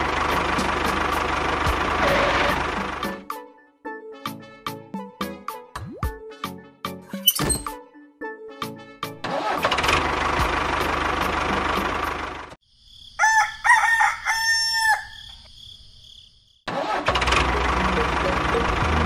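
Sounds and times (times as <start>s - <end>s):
rooster crowing: 13.2s - 15.4s.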